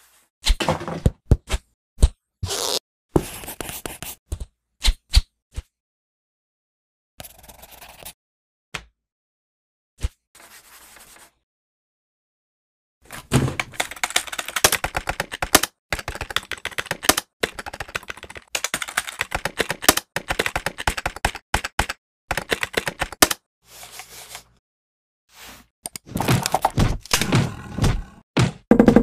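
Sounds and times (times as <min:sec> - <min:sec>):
rapid typing on keyboard: 0:13.6 - 0:23.4.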